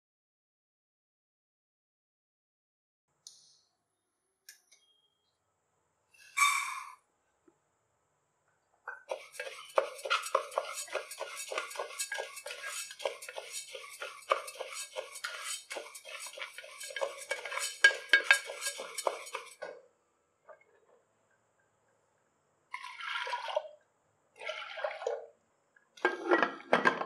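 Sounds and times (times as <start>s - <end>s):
spatula scraping lentils in pot: 9.0s - 19.7s, 22.7s - 23.7s
lentils rattling against pot: 9.1s - 19.7s.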